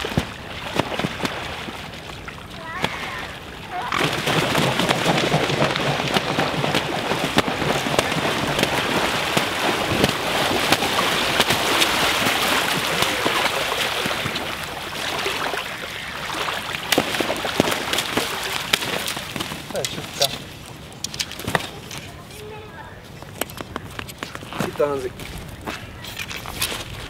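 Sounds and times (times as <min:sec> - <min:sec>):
wings beating on water: 0:00.0 - 0:20.5
swans splashing in water: 0:00.0 - 0:22.6.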